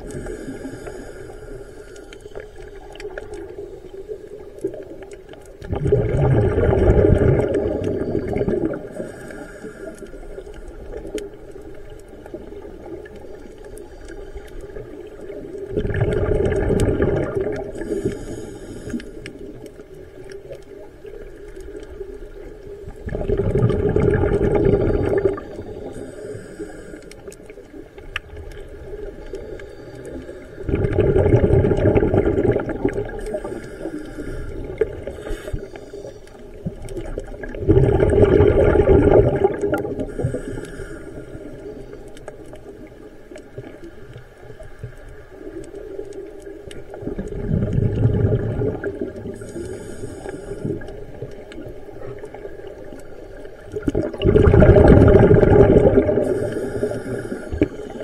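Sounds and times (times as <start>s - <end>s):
bubbling underwater exhalations: 5.6s - 9.1s, 15.6s - 18.1s, 22.9s - 26.0s, 30.6s - 33.5s, 36.6s - 40.5s, 46.9s - 49.6s, 53.7s - 57.8s
regulator hiss: 17.8s - 19.3s, 25.5s - 27.3s, 49.4s - 50.9s, 56.2s - 58.0s.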